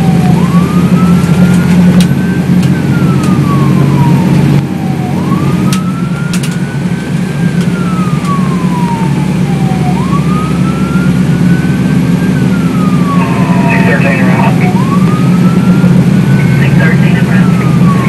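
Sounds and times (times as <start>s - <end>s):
engine droning: 0.0s - 18.0s
fire engine siren wailing: 0.0s - 18.0s
road noise: 0.0s - 18.0s.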